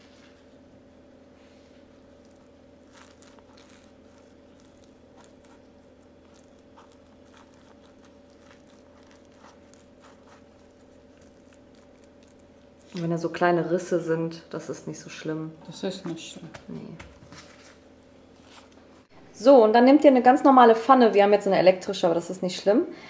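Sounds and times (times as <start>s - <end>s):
low hum: 0.0s - 19.6s
gloves rustling: 1.5s - 13.8s
flatbread crinkling: 1.8s - 13.5s.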